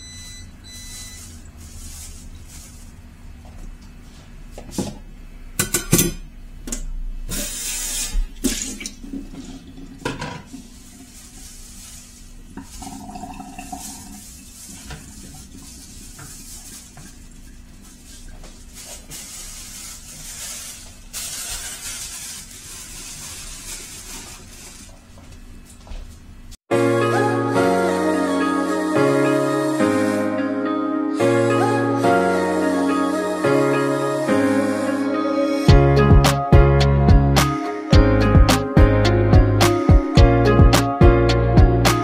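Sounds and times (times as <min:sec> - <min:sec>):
kitchen tap running: 0:07.3 - 0:24.9.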